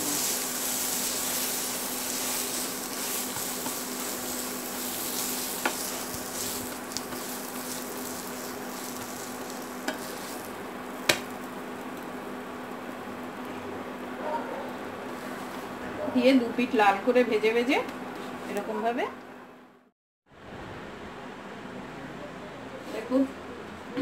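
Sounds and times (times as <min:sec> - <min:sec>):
bread sizzling in a pan: 0:00.0 - 0:14.1.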